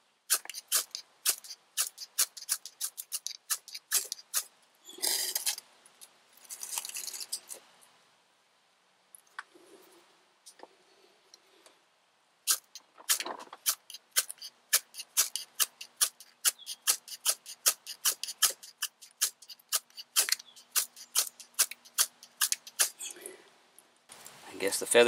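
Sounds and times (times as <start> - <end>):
knife scraping ferro rod: 0.3 - 5.6, 12.5 - 23.1.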